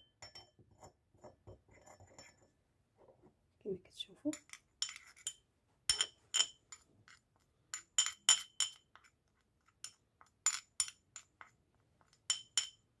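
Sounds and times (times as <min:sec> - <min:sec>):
metal spoon clinking on ceramic dish: 0:00.0 - 0:00.6, 0:04.3 - 0:12.9.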